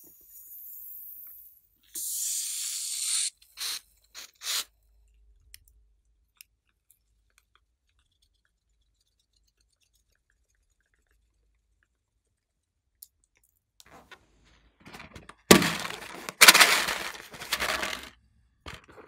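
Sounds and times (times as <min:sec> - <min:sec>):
balloon air hissing: 0:00.0 - 0:04.7.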